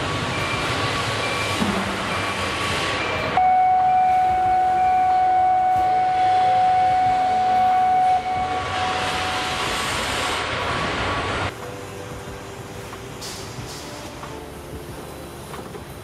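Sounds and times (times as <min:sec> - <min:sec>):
long steady alarm tone: 0:03.3 - 0:09.6.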